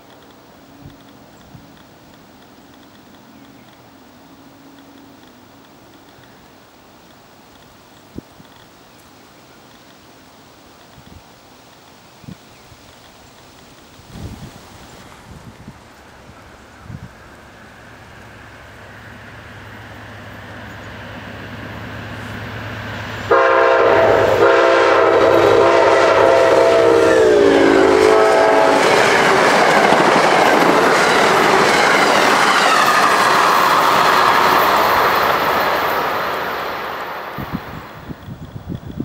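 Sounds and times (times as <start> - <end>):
passenger train rumble: 0.0 - 39.0
clickety-clack of train coaches: 20.1 - 39.0
train horn blasts: 23.2 - 29.5.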